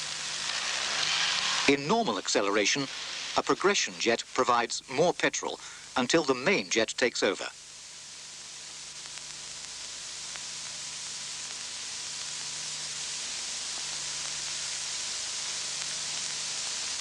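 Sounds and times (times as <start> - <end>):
rushing air hiss: 0.0 - 6.7.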